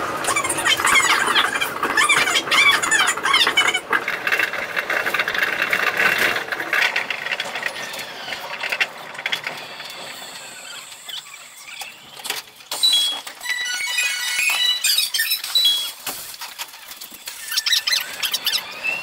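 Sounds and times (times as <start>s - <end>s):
high-pitched train hiss and squeal: 9.6s - 12.0s.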